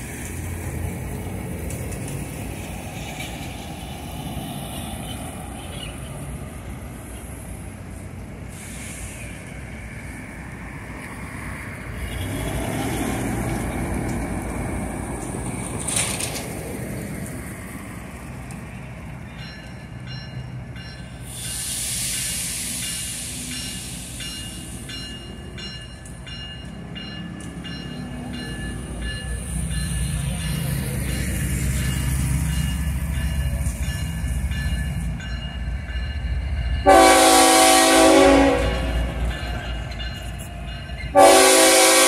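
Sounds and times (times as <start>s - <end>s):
diesel locomotive rumbling: 0.0s - 42.0s
air hissing: 8.4s - 9.5s, 21.2s - 24.8s.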